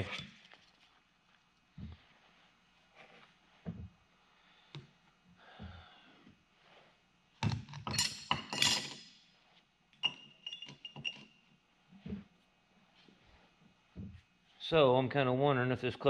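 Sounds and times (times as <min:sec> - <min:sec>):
steel parts clinking and clattering: 0:07.7 - 0:09.2, 0:10.0 - 0:11.2.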